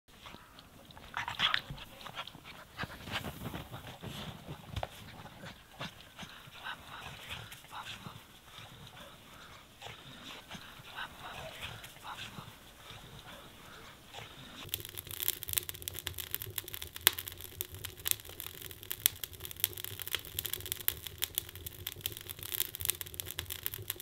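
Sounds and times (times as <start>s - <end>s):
snow rustling and crunching: 2.8s - 5.1s.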